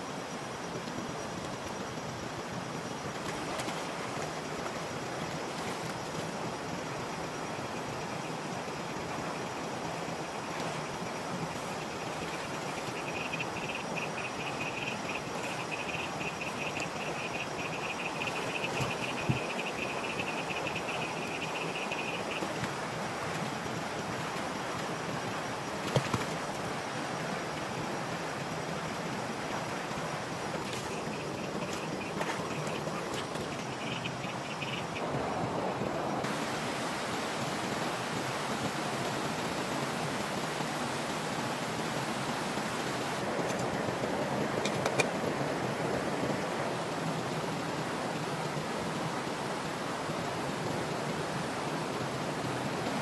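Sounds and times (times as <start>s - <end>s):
night insects chirping: 0.0s - 53.0s
stream water flowing: 0.0s - 53.0s.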